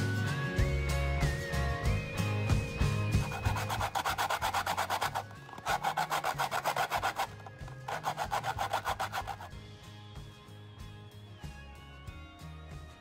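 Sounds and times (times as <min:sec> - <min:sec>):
bread rasping on a grater: 0:02.8 - 0:09.5.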